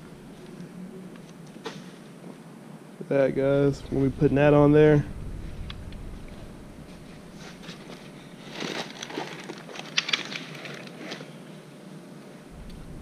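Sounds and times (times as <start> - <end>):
packaging rustling and crackling: 7.4 - 11.4.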